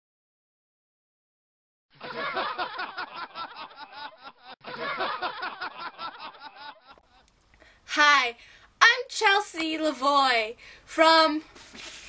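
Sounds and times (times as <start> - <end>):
recorded laughter: 2.0 - 7.2.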